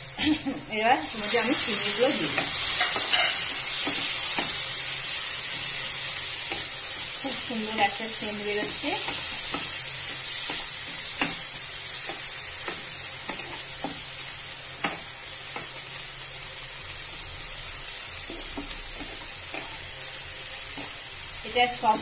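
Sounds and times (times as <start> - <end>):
food sizzling in butter: 0.0 - 22.0
spatula scraping a pan: 2.2 - 4.6.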